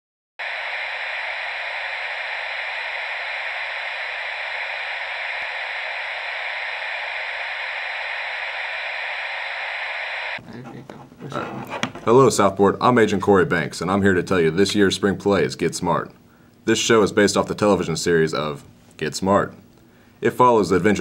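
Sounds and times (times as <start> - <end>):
static hiss: 0.4 - 10.4.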